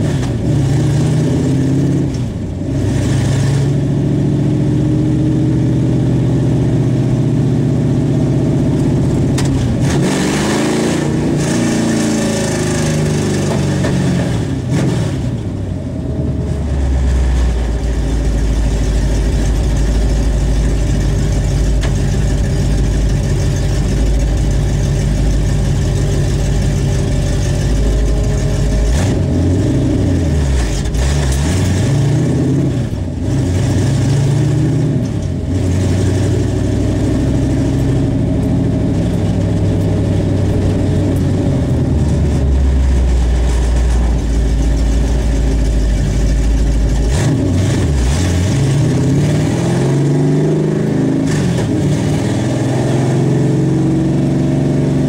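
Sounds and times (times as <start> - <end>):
car engine revving and idling: 0.0 - 55.0.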